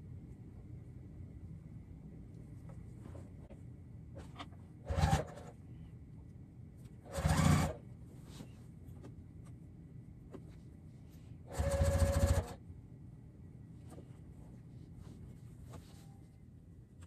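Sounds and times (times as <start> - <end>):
sewing machine running: 4.8 - 5.6, 7.0 - 7.8, 11.5 - 12.6
fabric handling: 8.0 - 9.6, 13.8 - 16.5.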